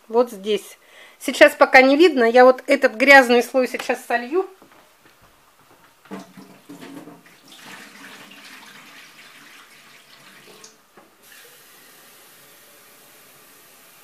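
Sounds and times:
water pouring and gurgling: 6.1s - 12.2s
steady hiss: 10.7s - 14.0s.

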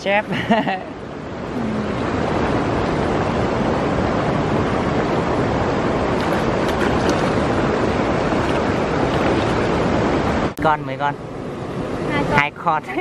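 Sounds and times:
stream water rushing: 0.0s - 13.0s
hands splashing in water: 6.2s - 7.5s.

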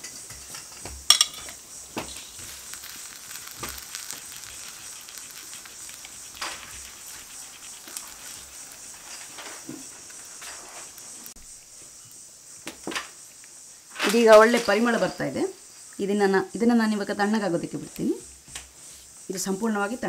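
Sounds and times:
oil sizzling and crackling: 0.0s - 14.5s.

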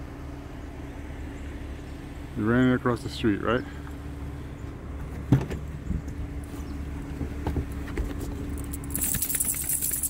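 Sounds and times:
vehicle engine humming: 0.0s - 10.0s
metallic jingling of car door: 8.5s - 10.0s.

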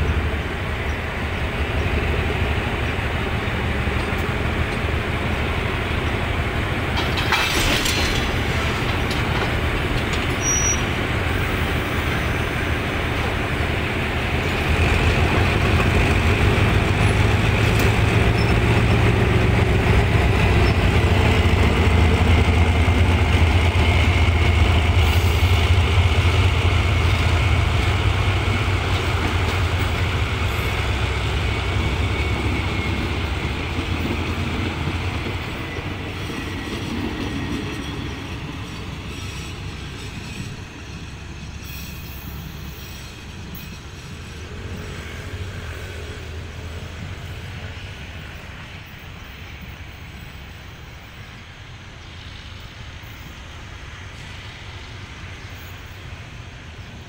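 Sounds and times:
coaches rolling on track: 0.0s - 57.0s
diesel locomotive engine drone: 0.0s - 57.0s.

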